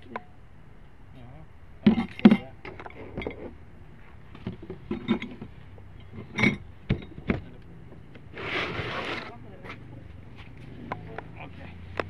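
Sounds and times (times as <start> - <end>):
dishes and glassware clinking: 1.8 - 3.4, 4.5 - 7.4
rustling: 8.2 - 10.8.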